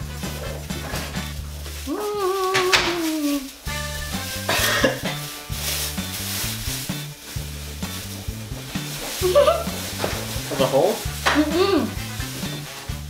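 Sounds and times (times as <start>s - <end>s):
background music with bass line: 0.0s - 1.9s, 3.5s - 13.0s
plastic bags crinkling: 0.0s - 13.0s
short voice sound: 11.3s - 12.0s.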